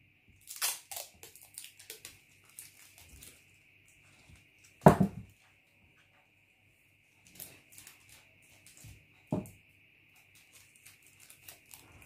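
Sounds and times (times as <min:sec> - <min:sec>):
heavy thud: 0:04.9 - 0:05.3
paper rustling and crinkling: 0:10.2 - 0:12.0.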